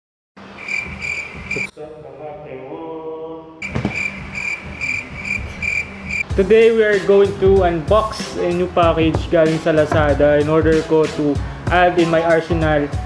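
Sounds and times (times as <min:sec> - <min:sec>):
insect-like chirping: 0:00.6 - 0:01.7, 0:03.6 - 0:06.2.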